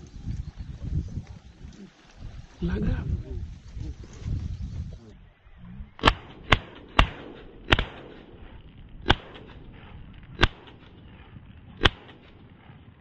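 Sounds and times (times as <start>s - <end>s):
loud shotgun shots with echo: 6.0s - 12.4s.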